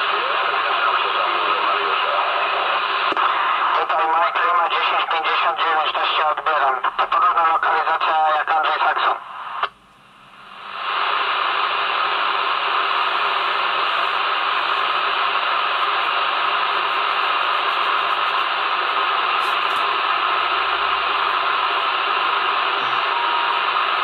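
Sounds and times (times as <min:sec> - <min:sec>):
radio static hiss: 0:00.0 - 0:09.8, 0:10.4 - 0:24.0
sharp radio click: 0:03.0 - 0:09.8.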